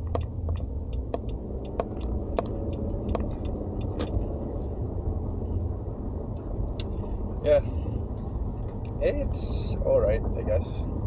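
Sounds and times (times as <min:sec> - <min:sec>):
engine and road rumble: 0:00.0 - 0:11.0.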